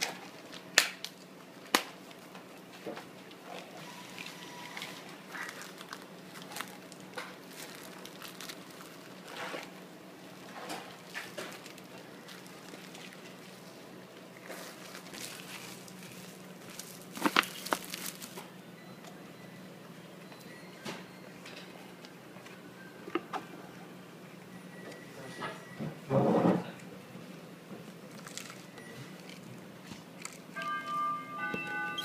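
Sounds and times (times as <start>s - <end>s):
vending machine electrical hum: 0.0s - 32.0s
plastic bag crinkling: 4.2s - 9.7s, 10.4s - 13.8s, 14.4s - 18.5s, 28.1s - 29.5s.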